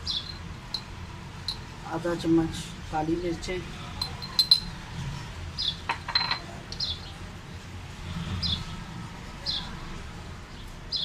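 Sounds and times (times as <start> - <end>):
small bird chirping: 0.0 - 0.9, 6.8 - 7.1
spoon clinking on ceramic plate: 4.0 - 4.7, 5.9 - 6.5.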